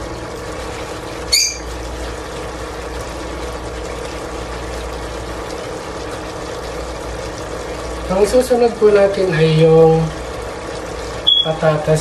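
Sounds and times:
stove hum and hiss: 0.0 - 12.0
short high squeak: 1.3 - 1.7.

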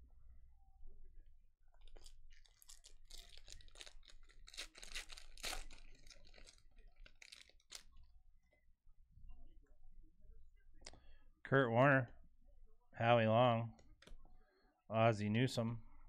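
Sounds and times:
wrapper tearing and crinkling: 1.8 - 7.9.

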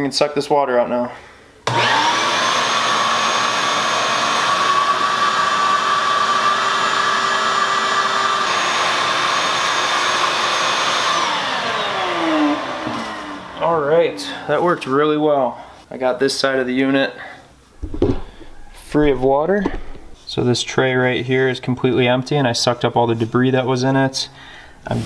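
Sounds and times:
shop vac whining: 1.6 - 15.6.

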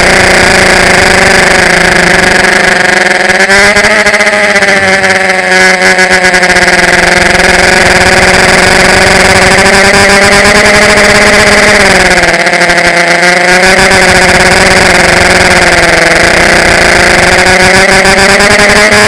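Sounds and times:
drone motors whining: 0.0 - 19.0.

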